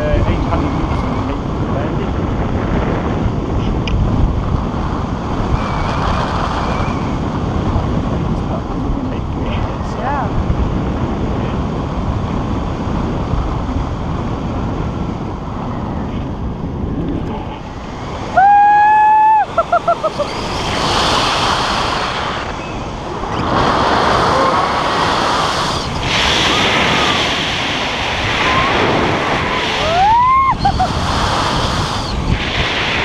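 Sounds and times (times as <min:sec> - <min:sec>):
wind rushing over microphone: 0:00.0 - 0:33.0
person crying out: 0:18.4 - 0:20.3, 0:29.8 - 0:30.9
laugh-like bursts: 0:19.5 - 0:20.4.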